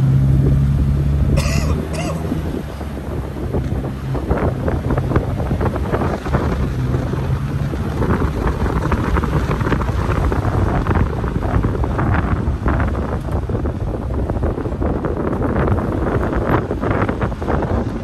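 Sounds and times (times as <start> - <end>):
tyre and road noise: 0.0 - 18.0
vehicle engine low hum: 0.0 - 18.0.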